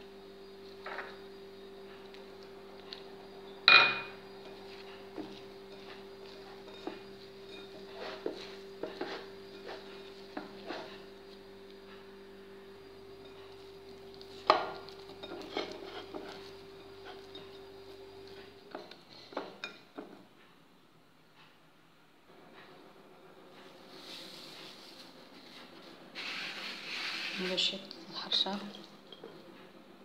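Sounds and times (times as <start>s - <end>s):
steady low hum: 0.0s - 30.0s
dough scraping in enamel bowl: 4.1s - 12.0s, 13.2s - 19.8s, 23.9s - 29.4s.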